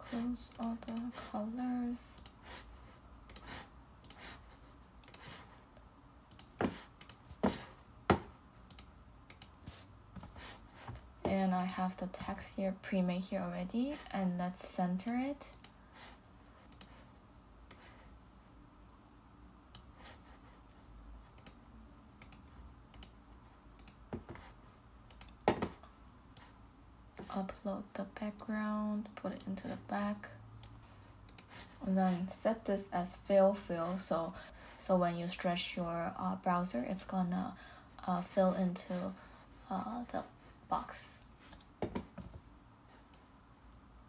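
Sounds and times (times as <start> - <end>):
computer mouse clicking: 0.5 - 1.1, 2.1 - 2.4, 3.3 - 4.4, 5.0 - 5.5, 6.3 - 7.2, 8.7 - 10.4, 15.0 - 15.8, 16.7 - 17.0, 19.7 - 20.0, 20.7 - 21.6, 22.2 - 23.2, 23.8 - 24.5, 25.1 - 25.5, 30.6 - 31.6.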